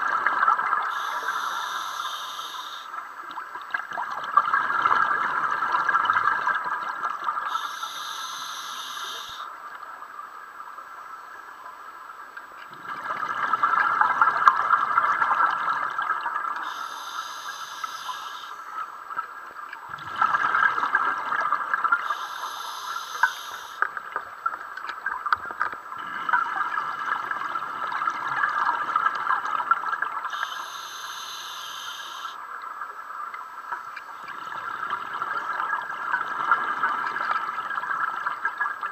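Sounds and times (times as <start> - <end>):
exhaled bubbles underwater: 0.0 - 9.5, 12.6 - 32.4, 34.0 - 38.9
inhalations through a regulator: 0.9 - 2.9, 7.5 - 9.5, 16.6 - 18.6, 22.0 - 23.8, 30.3 - 32.4.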